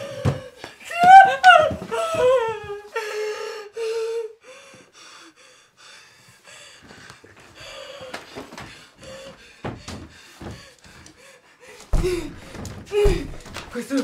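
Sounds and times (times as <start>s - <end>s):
woman sobbing: 0.0s - 4.4s.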